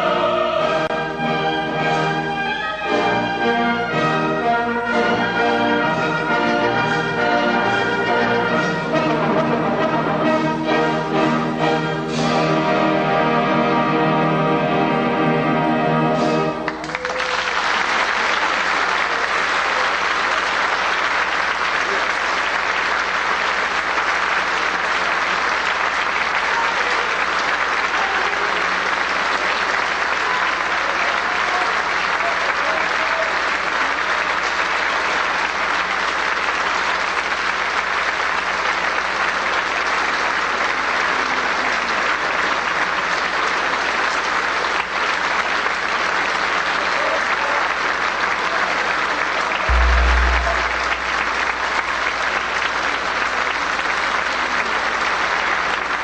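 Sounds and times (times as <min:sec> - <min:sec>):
audience applauding: 0:16.5 - 0:56.0
low thump: 0:49.7 - 0:51.5.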